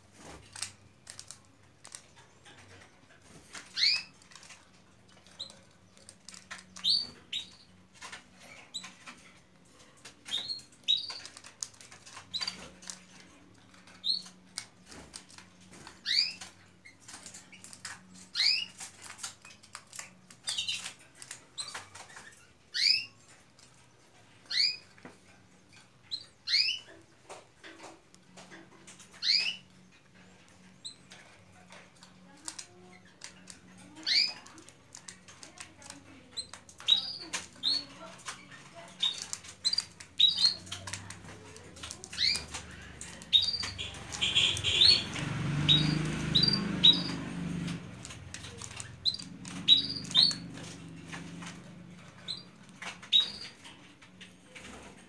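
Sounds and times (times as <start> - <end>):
birds tapping on cage bars: 0.1 - 55.0
canaries call notes: 0.2 - 55.0
wing flutters: 31.9 - 55.0.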